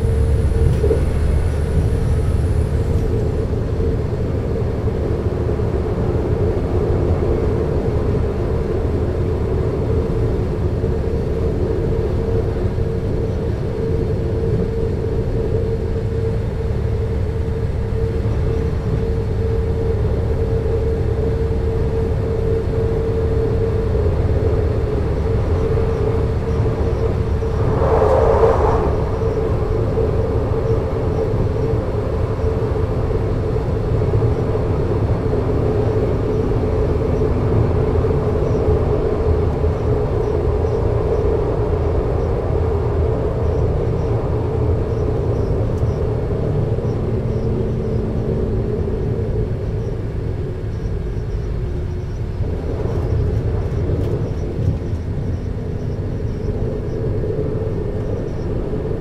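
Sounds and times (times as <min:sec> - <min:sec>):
diesel train engines idling: 0:00.0 - 0:04.8
brief rush of noise: 0:27.4 - 0:29.7.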